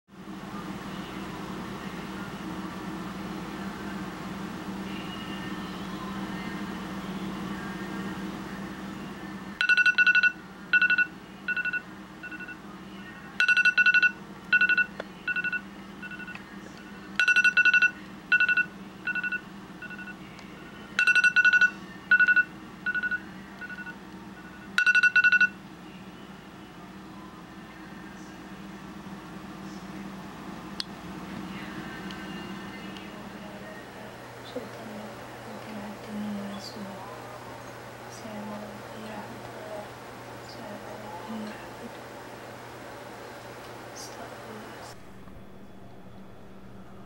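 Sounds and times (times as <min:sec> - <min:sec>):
low steady hum: 0:00.2 - 0:47.0
phone alarm beeping: 0:09.6 - 0:12.6, 0:13.4 - 0:16.4, 0:17.2 - 0:20.2, 0:21.0 - 0:25.6.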